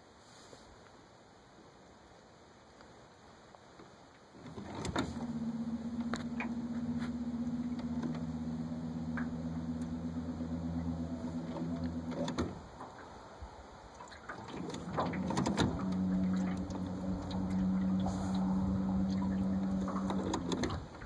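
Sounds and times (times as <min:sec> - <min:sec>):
small electric motor humming: 0:05.2 - 0:12.3, 0:15.2 - 0:20.5.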